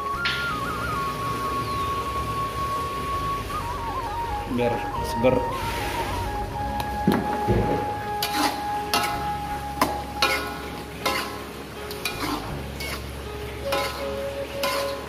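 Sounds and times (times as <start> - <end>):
sauce sizzling: 5.5 - 15.0
metal spoon scraping wok: 8.2 - 9.2, 9.8 - 15.0.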